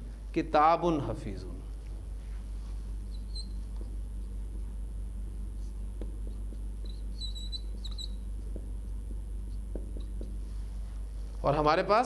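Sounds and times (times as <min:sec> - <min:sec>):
steady low hum: 0:00.0 - 0:12.0
whiteboard marker squeaking: 0:03.0 - 0:04.4, 0:05.6 - 0:10.4.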